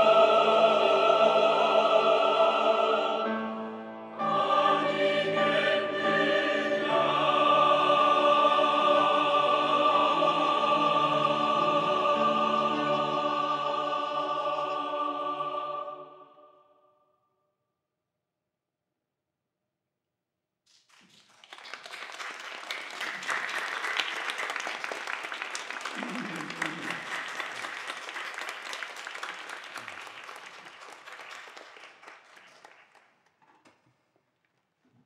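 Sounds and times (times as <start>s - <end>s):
audience applauding: 20.7s - 33.4s.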